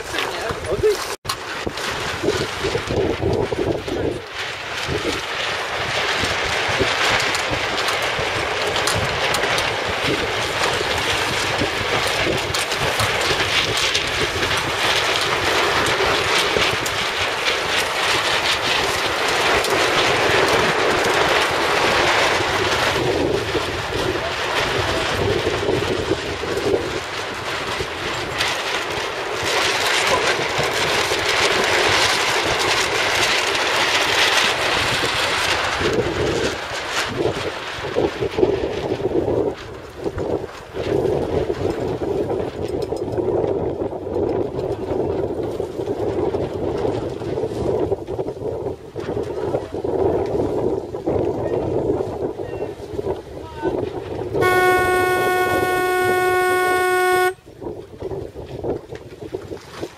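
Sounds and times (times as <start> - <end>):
water washing along hull: 0.0 - 59.9
wind buffeting microphone: 0.0 - 59.9.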